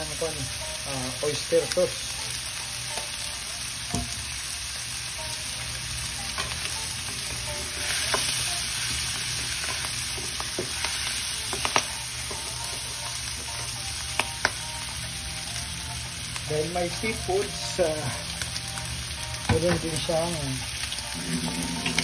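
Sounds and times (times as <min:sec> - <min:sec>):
food sizzling in frying pan: 0:00.0 - 0:22.0.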